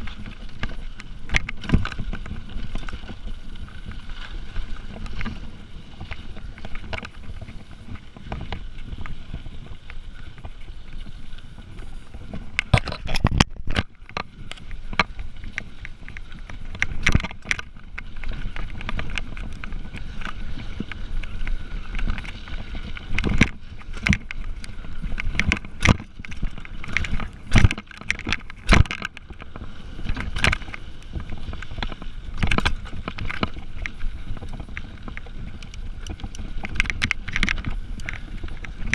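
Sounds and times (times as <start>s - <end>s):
bike clattering over bumps: 0.0s - 4.0s, 12.2s - 38.9s
bike tyre rumble on dirt: 0.0s - 38.9s.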